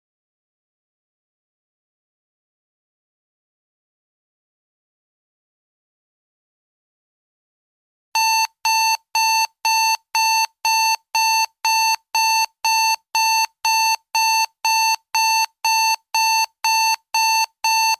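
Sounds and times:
electronic timer alarm beeping: 8.2 - 17.9.

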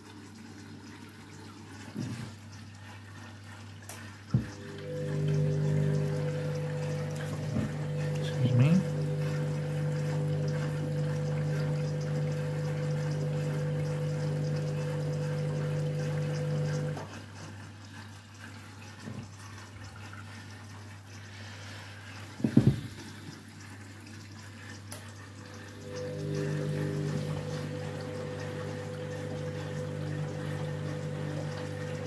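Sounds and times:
washing machine drum motor humming: 0.0 - 21.2, 22.1 - 32.0
water sloshing: 4.4 - 17.3.

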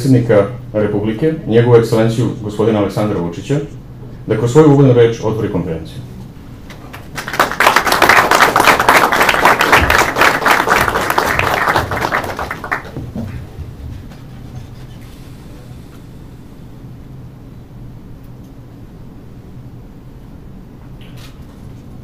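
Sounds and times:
audience applauding: 6.7 - 13.6.

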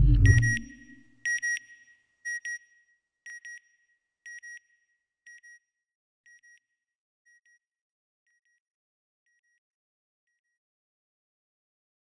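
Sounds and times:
high-pitched electronic double beeps: 0.0 - 1.0.

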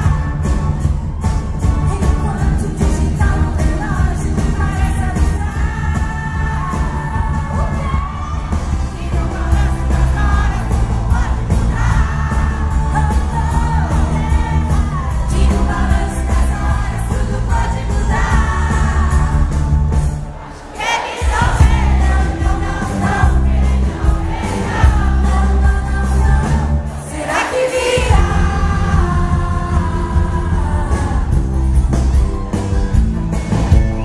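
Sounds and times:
female singer with live rock band: 0.0 - 20.2, 20.9 - 34.0
crowd noise: 0.0 - 34.0.

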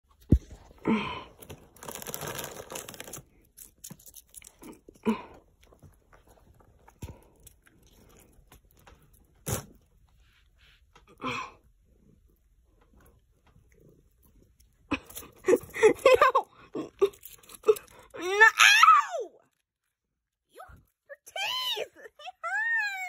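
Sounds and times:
cat crunching crackers: 0.5 - 10.2, 12.8 - 15.7.

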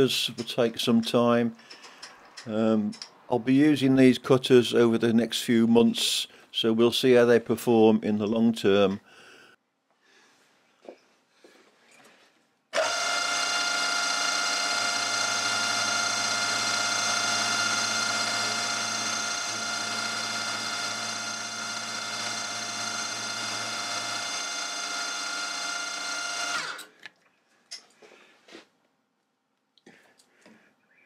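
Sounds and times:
machine winding down: 12.8 - 26.9
milling machine whine: 12.8 - 26.9.

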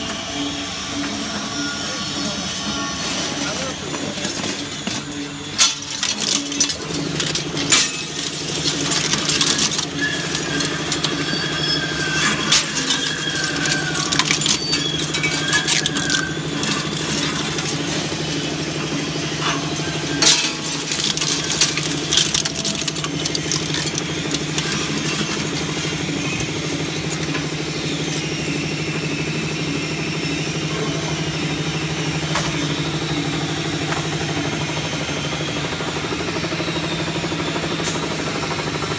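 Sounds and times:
shredder humming: 0.0 - 38.9
metallic clinks and clanks: 19.4 - 27.4.

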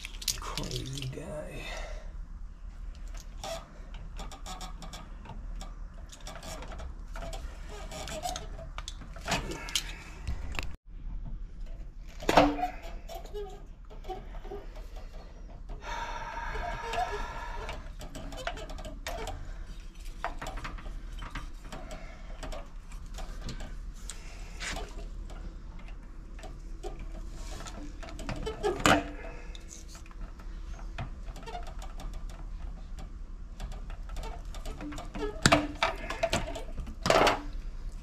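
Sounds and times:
small metallic clicks and rattles: 0.0 - 1.1.

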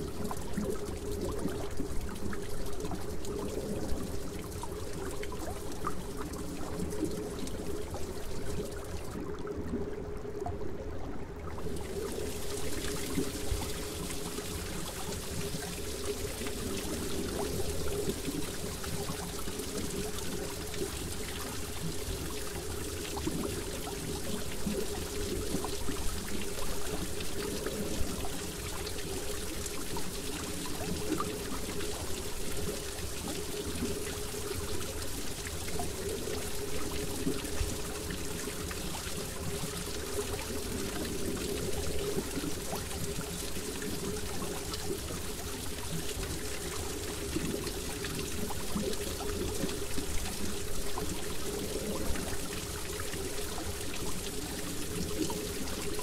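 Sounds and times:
trickling pouring water: 11.5 - 56.0.

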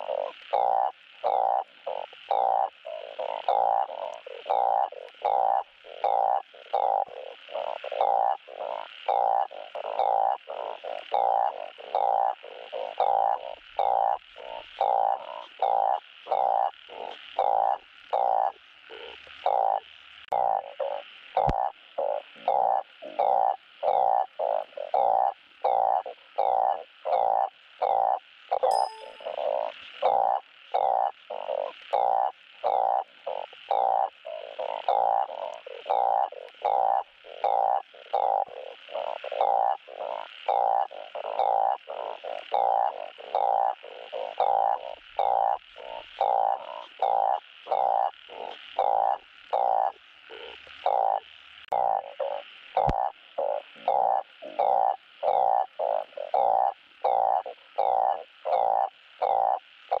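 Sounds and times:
frog nasal mating calls: 0.0 - 60.0.

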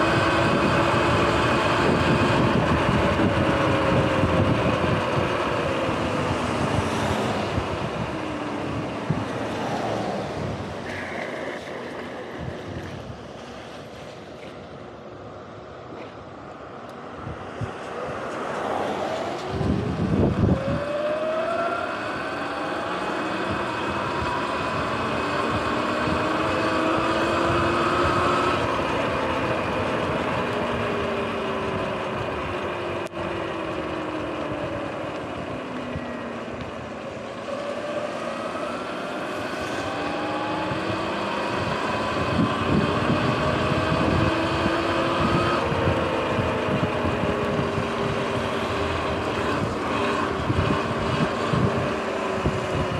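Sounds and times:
electric motorbike motor whining: 0.0 - 13.2, 18.6 - 52.9
wind buffeting microphone: 0.0 - 14.3, 17.0 - 52.9
tyres hissing on wet road: 37.4 - 40.3.

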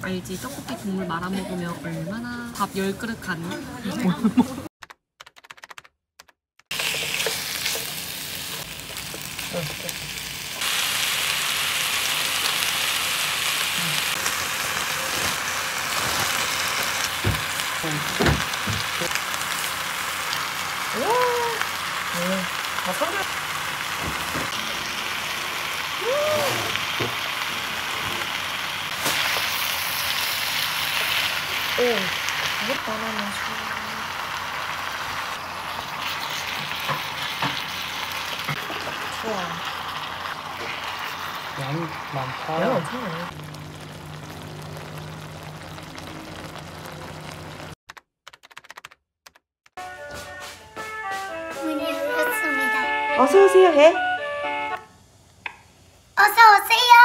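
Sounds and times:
food sizzling in a frying pan: 6.7 - 47.8.

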